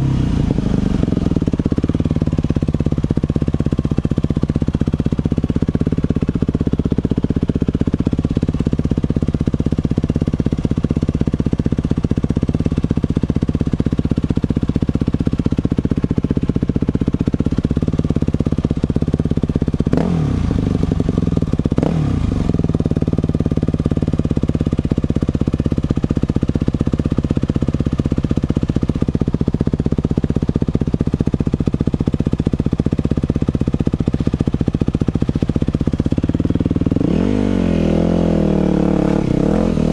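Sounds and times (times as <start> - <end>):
dirt bike engine running: 0.0 - 39.9.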